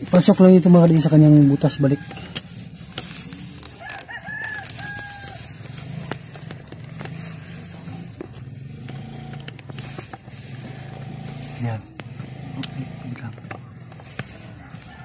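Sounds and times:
rooster crowing: 0.9 - 2.9, 3.5 - 5.9, 14.2 - 15.0.

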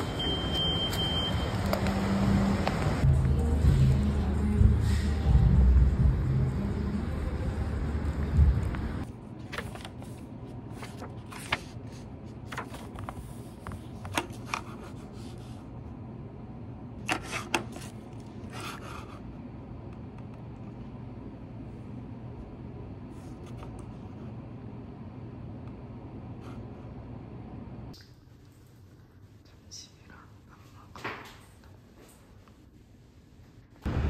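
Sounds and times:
low room hum: 0.1 - 34.0
notebook pages turning: 9.0 - 15.6, 17.0 - 18.8.

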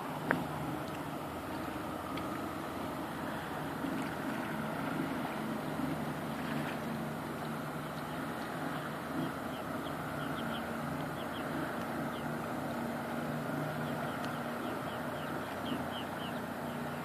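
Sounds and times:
distant motorboats droning: 0.0 - 17.0
small birds chirping: 7.4 - 12.6, 13.5 - 17.0.

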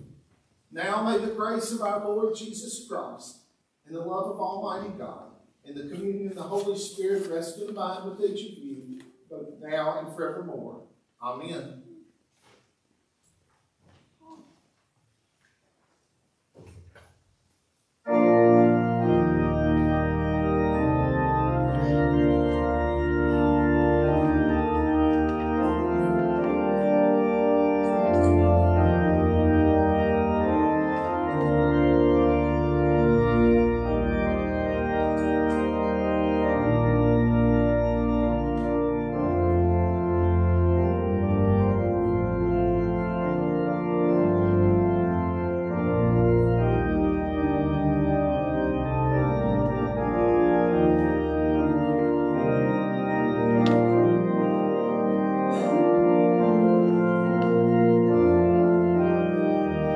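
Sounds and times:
church organ playing chords: 0.0 - 11.9, 18.0 - 59.9.

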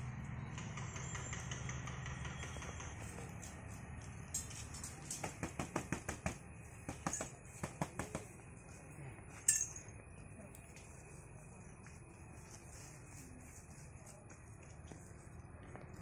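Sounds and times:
light metallic clinking: 4.2 - 5.3, 9.4 - 10.0.

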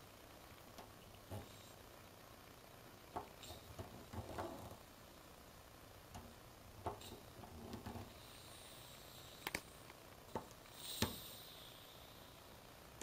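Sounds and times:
soft gas hiss: 0.0 - 13.0
valve clicking and knocking: 3.1 - 4.8.

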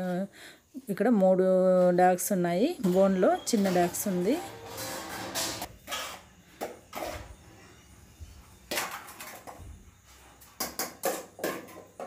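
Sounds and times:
steel bowl scraping: 2.8 - 6.3.

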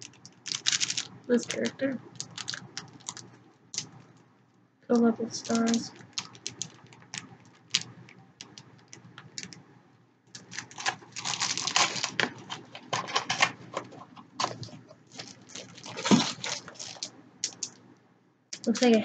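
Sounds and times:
packaging crinkling: 0.0 - 4.2, 5.3 - 9.6, 10.3 - 17.8, 18.6 - 19.0.

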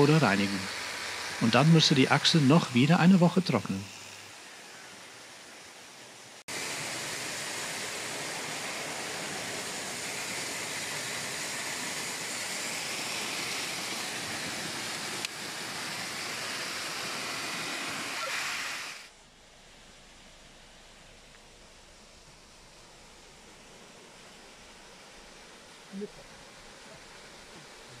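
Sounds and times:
heat gun blowing hot air: 0.0 - 4.6, 6.5 - 19.1.

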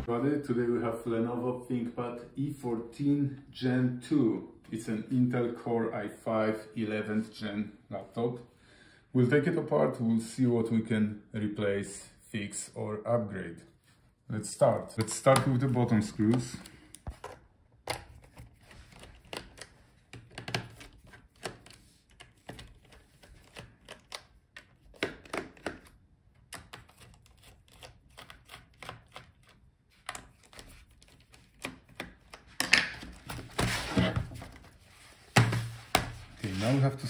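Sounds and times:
rubbing and scraping on case: 33.2 - 37.0.

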